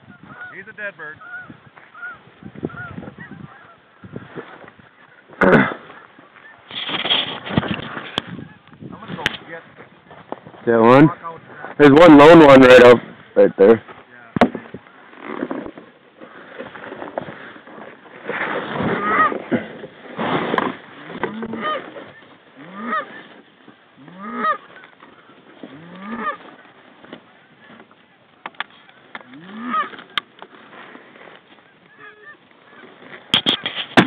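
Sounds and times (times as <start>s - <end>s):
goose honking: 0.1s - 4.0s, 18.9s - 19.6s, 21.0s - 23.4s, 24.0s - 26.6s, 28.8s - 30.2s, 31.7s - 33.6s
rustling: 3.2s - 34.0s.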